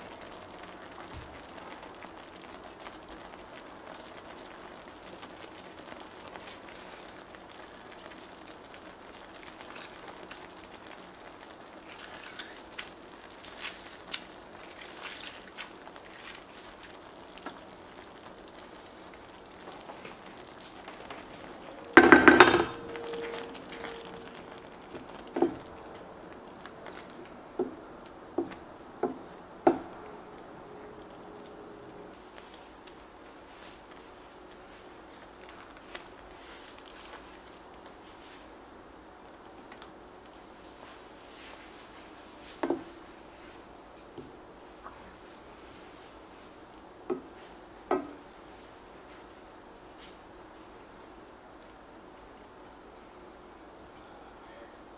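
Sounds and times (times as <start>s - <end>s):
spatula knocking on pot: 21.9s - 22.9s, 28.4s - 29.9s.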